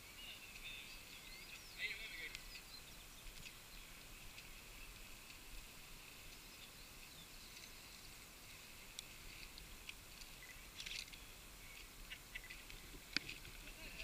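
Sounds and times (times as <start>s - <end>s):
quiet high hiss: 0.0s - 14.0s
small clicks: 8.9s - 11.2s.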